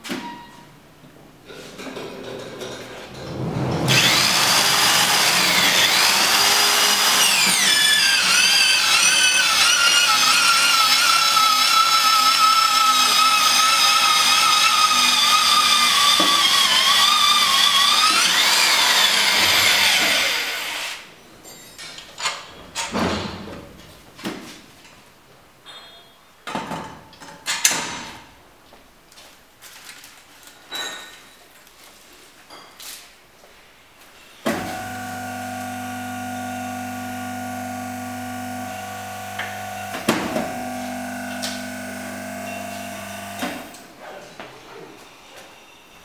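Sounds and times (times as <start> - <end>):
pipe planer motor whine: 3.9 - 20.9, 34.5 - 43.8.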